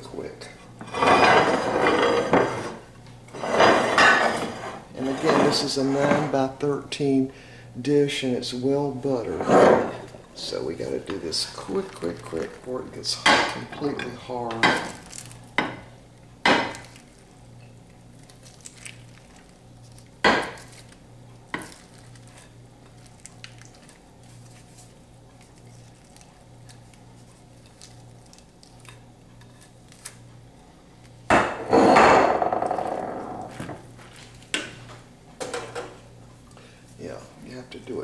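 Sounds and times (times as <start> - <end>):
wooden spoon scraping on glass: 0.8 - 6.3.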